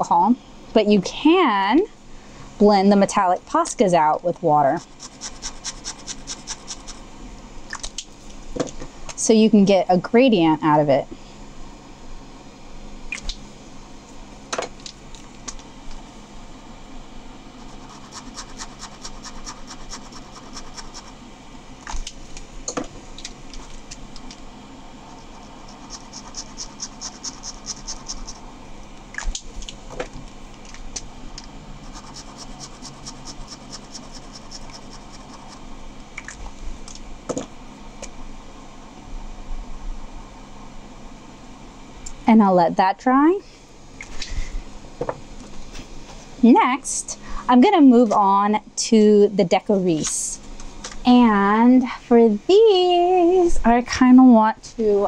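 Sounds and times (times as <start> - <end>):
marker scratching on paper: 4.8 - 7.0, 17.6 - 21.1, 25.1 - 28.4, 31.9 - 35.6.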